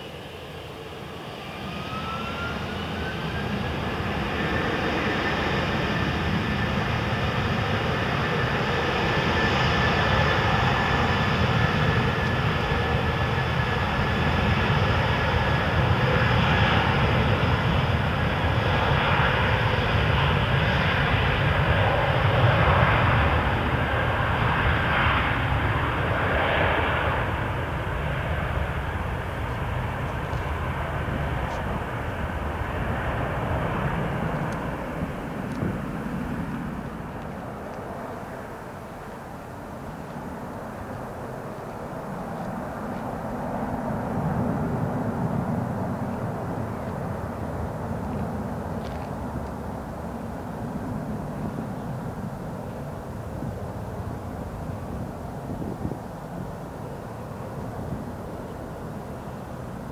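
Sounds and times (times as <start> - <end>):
jet engines spooling up: 0.0 - 18.6.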